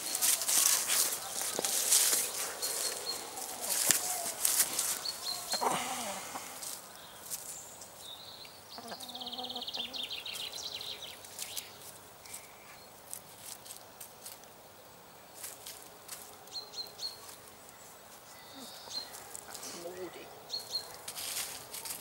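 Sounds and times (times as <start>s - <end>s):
hens scratching in dry leaves: 0.0s - 8.1s, 10.3s - 22.0s
hen clucking: 8.7s - 10.3s.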